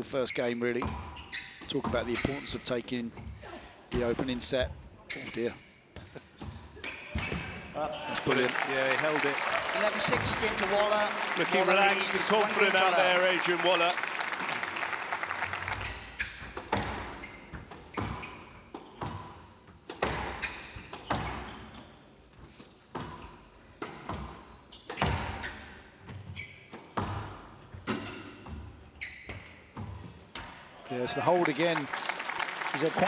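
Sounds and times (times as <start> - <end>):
squash ball hits echoing: 16.4 - 21.4.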